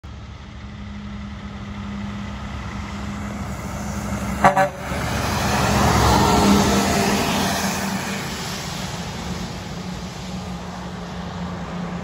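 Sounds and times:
truck engine drone: 0.0 - 12.0
truck horn toot: 4.3 - 5.2.

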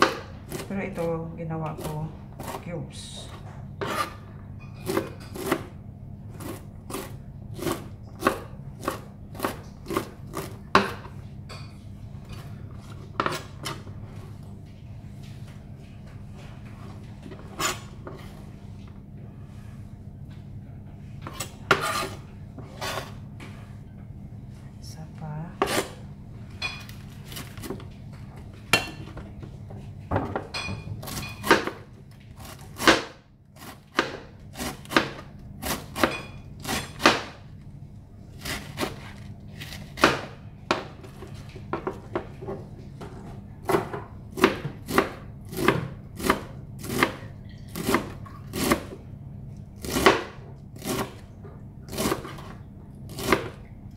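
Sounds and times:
low steady hum: 0.0 - 53.9
knife chopping on plastic board: 32.4 - 37.5, 43.6 - 49.0.

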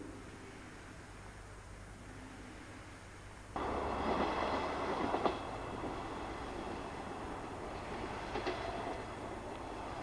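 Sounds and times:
diesel train running: 3.6 - 10.0.

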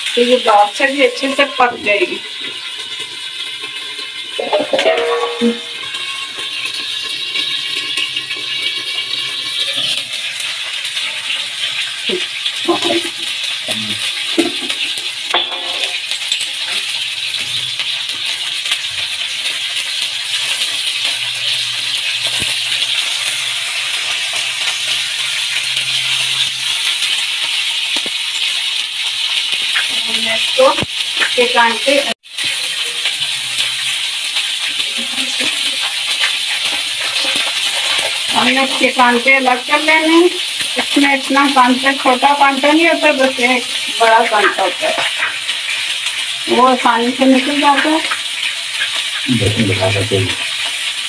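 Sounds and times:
fish sizzling in a pan: 0.0 - 51.0
metal spatula scraping pan: 0.5 - 10.5.

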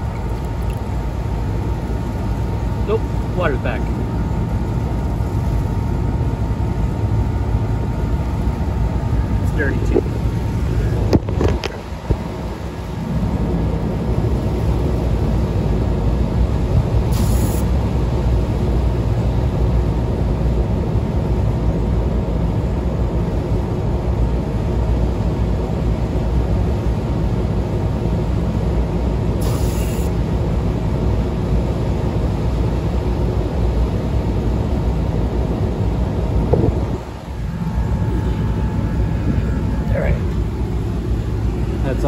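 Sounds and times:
exhaust fans droning: 0.0 - 42.0
brief hisses: 17.2 - 17.7, 29.4 - 30.1.

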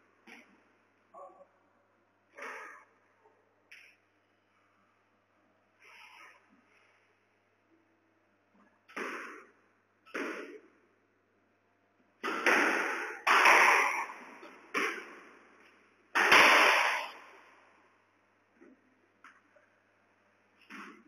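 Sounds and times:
squash ball hits echoing: 8.9 - 10.8, 12.2 - 17.6, 20.6 - 21.0.

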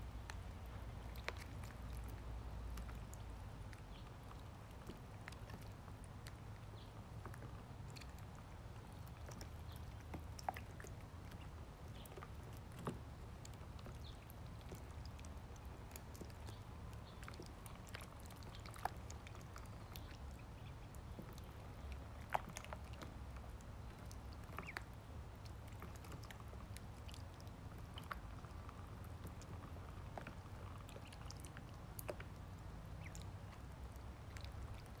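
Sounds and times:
duckling bills pecking: 24.0 - 24.9.

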